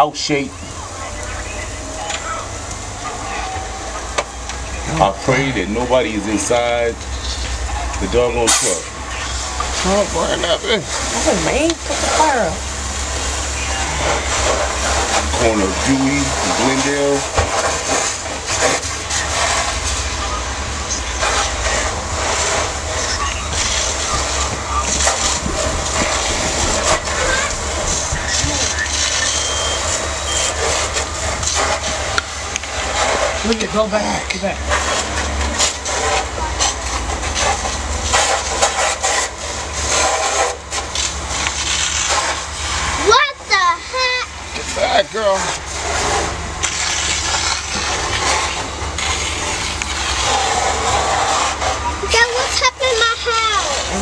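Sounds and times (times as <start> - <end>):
fire pops and crackles: 0.0 - 54.0
vehicle fire rushing rumble: 0.0 - 54.0.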